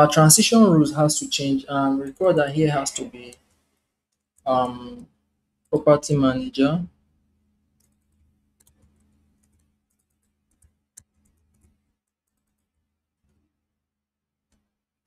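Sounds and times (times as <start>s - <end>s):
keyboard and mouse clicks: 7.8s - 12.7s.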